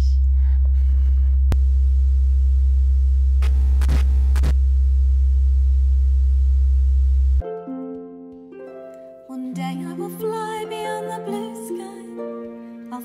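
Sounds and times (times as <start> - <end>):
low electrical hum: 0.0 - 7.4.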